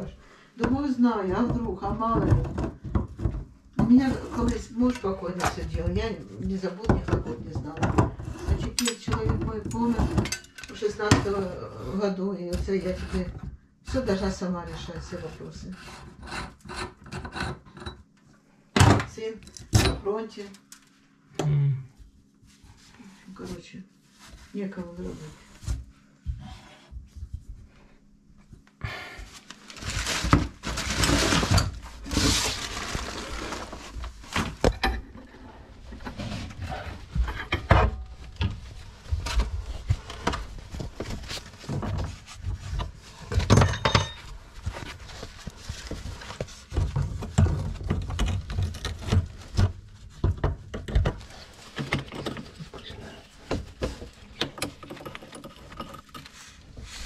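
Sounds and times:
objects and tools rattling: 0:00.7 - 0:18.1, 0:29.3 - 0:57.0.

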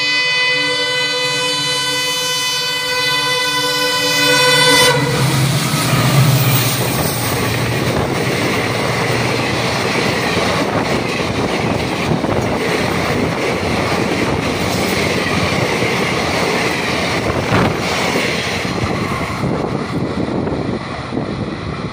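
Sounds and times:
diesel locomotive engine: 0:00.0 - 0:21.9
train wheels clattering on rails: 0:05.2 - 0:21.2.

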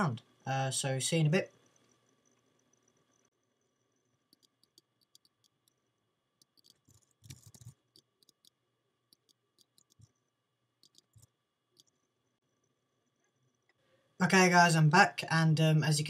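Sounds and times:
mouse and keyboard clicks: 0:04.3 - 0:05.8, 0:06.4 - 0:10.1, 0:10.8 - 0:12.0.

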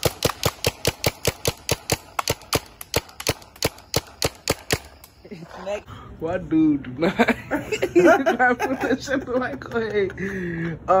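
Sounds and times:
paintball marker shots: 0:00.0 - 0:05.2.

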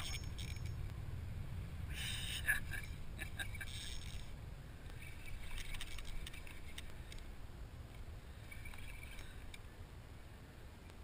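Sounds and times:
fishing reel ticking: 0:00.0 - 0:00.8, 0:03.6 - 0:04.3, 0:04.9 - 0:07.3, 0:08.4 - 0:09.6
wind rumbling on microphone: 0:00.0 - 0:11.0.

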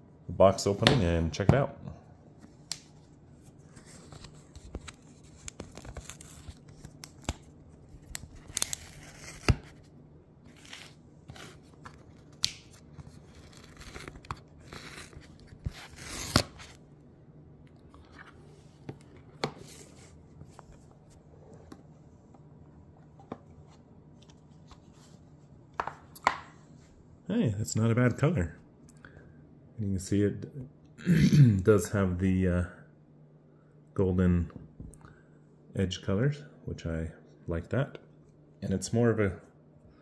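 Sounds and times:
cardboard tabs tearing: 0:05.4 - 0:09.8, 0:10.5 - 0:16.8.

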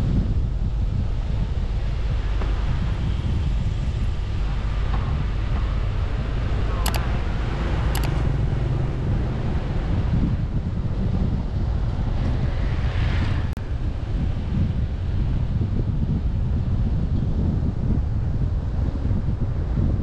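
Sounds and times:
road and traffic noise: 0:00.0 - 0:20.0
wind rumble on microphone: 0:00.0 - 0:20.0
short sharp clicks: 0:06.8 - 0:07.1, 0:08.0 - 0:08.2.

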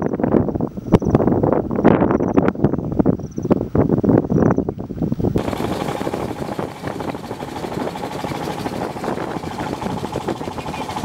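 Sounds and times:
boat engine running: 0:05.4 - 0:11.0.

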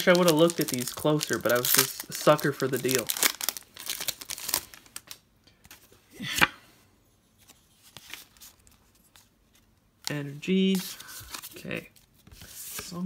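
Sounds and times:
foil wrapper crinkling: 0:00.0 - 0:05.2.

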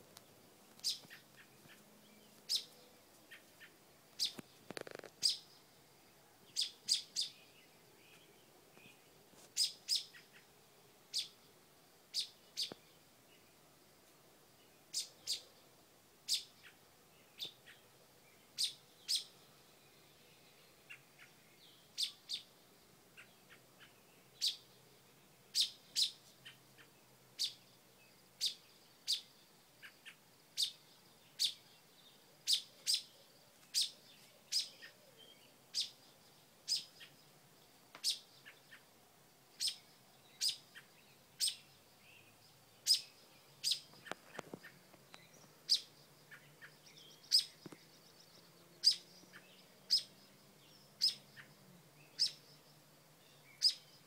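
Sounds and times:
robin alarm calls: 0:00.8 - 0:05.6, 0:06.5 - 0:07.4, 0:09.6 - 0:10.5, 0:11.1 - 0:11.4, 0:12.1 - 0:12.8, 0:14.9 - 0:15.5, 0:16.3 - 0:16.8, 0:18.5 - 0:19.4, 0:20.9 - 0:22.5, 0:23.1 - 0:24.7, 0:25.5 - 0:27.7, 0:28.4 - 0:30.8, 0:31.4 - 0:31.7, 0:32.4 - 0:37.2, 0:38.0 - 0:38.9, 0:39.5 - 0:41.9, 0:42.8 - 0:52.6, 0:53.5 - 0:54.0.

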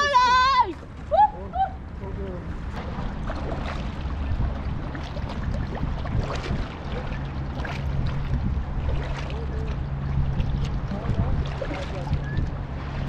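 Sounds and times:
steady low hum: 0:00.0 - 0:13.0
paddle splashing in water: 0:02.5 - 0:13.0
wind on microphone: 0:02.8 - 0:13.0.

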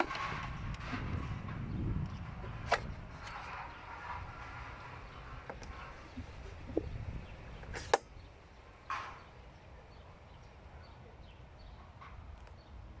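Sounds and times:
microphone handling rumble: 0:00.0 - 0:07.9.

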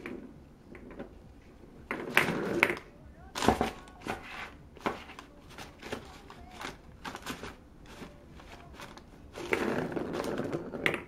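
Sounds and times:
wrapping paper rustling: 0:03.3 - 0:10.8.

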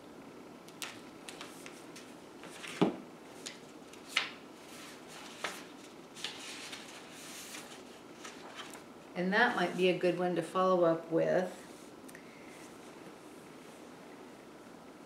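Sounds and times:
paper rustling: 0:00.7 - 0:08.9.

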